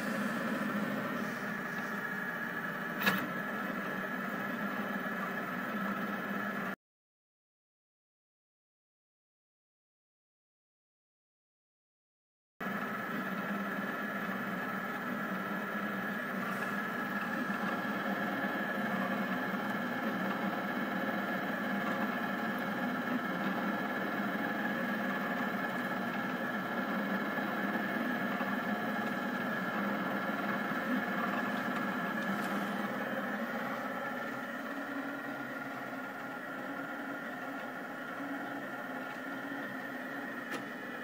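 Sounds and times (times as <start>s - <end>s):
three d printer motors humming: 0.0s - 6.8s, 12.6s - 41.0s.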